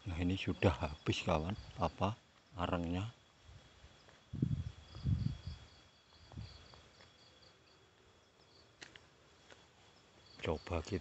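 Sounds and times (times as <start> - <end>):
cricket chirping: 0.0 - 11.0
dull low thumps: 4.4 - 5.5.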